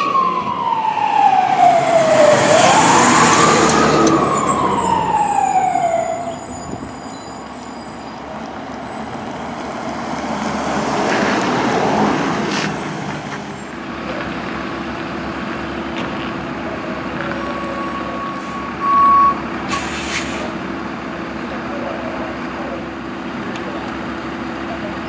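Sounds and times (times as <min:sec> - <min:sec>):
ambulance driving past: 0:00.0 - 0:19.2
high beep: 0:06.3 - 0:07.4.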